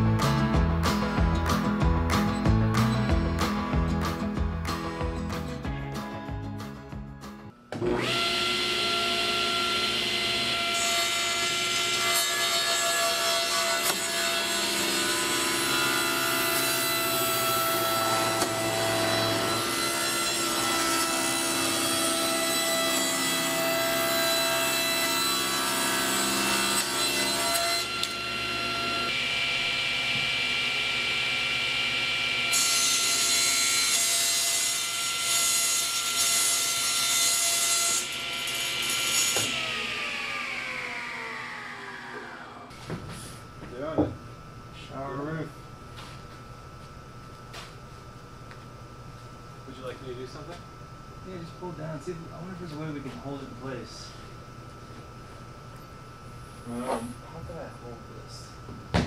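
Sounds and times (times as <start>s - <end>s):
table saw cutting panels: 7.7s - 44.2s.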